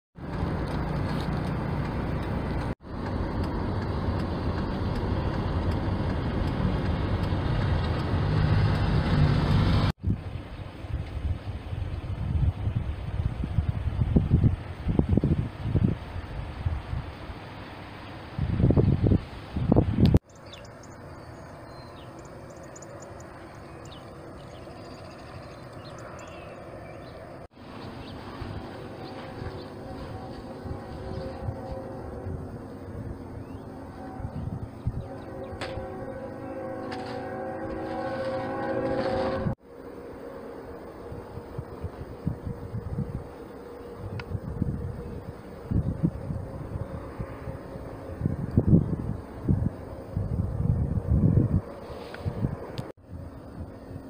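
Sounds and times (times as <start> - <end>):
tractor engine drone: 0.2 - 18.5, 19.3 - 54.0
low outdoor background hum: 0.2 - 54.0
small birds chirping: 20.2 - 28.2.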